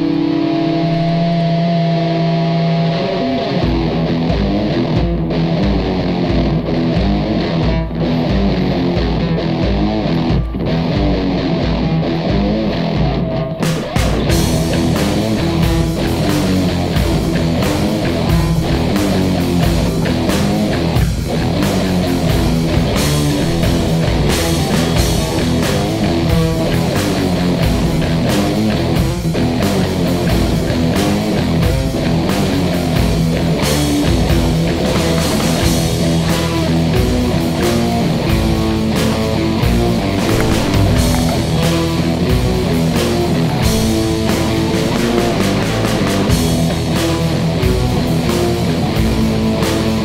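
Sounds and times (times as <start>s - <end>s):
rock music with electric guitar: 0.0s - 50.0s
drum kit: 10.2s - 50.0s.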